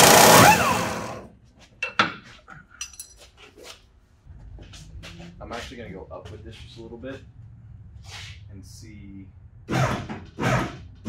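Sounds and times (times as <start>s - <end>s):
loud power tool noise: 0.0s - 1.3s.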